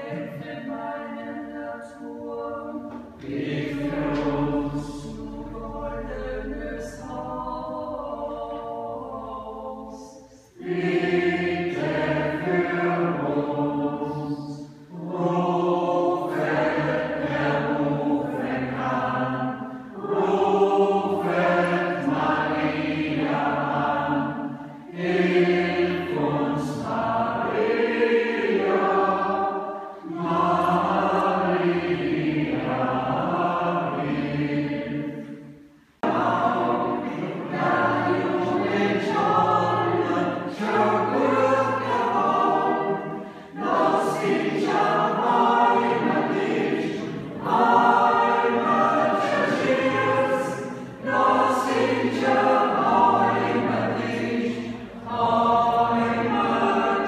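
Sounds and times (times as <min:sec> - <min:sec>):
mixed choir singing: 0:00.0 - 0:57.0.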